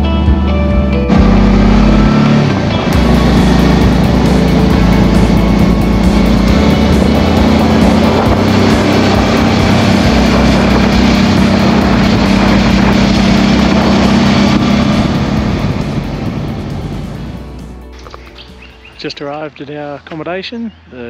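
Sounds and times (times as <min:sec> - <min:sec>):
motorcycle engine running: 0:00.0 - 0:19.4
wind noise on microphone: 0:02.4 - 0:17.5.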